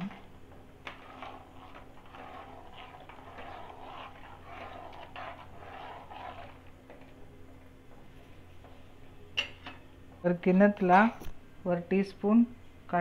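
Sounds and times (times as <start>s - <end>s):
spatula stirring liquid: 0.5s - 7.2s
spatula scraping a pan: 0.8s - 7.0s.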